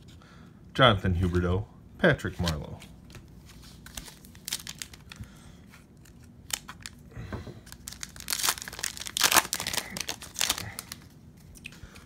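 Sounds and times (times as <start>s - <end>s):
foil wrapper crackling: 3.8s - 5.3s, 6.0s - 7.0s, 7.6s - 11.1s.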